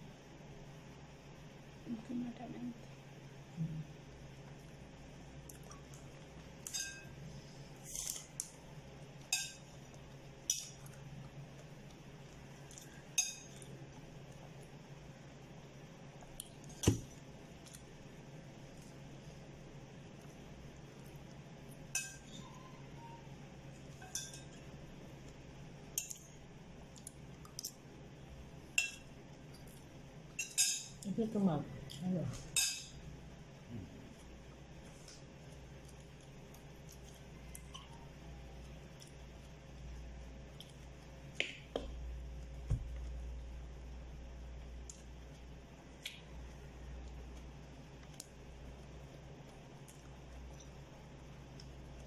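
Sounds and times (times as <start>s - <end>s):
faint low hum: 0.0s - 52.0s
tableware clinking: 6.7s - 7.1s, 30.4s - 31.0s, 32.5s - 33.0s.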